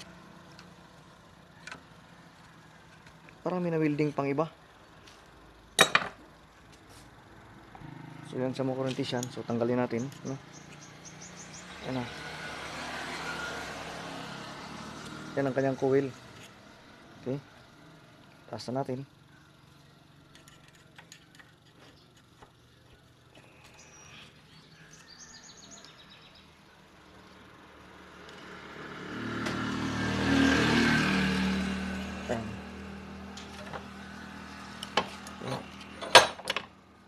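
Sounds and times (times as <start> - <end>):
vehicle passing by: 7.4 - 18.3, 24.9 - 36.0.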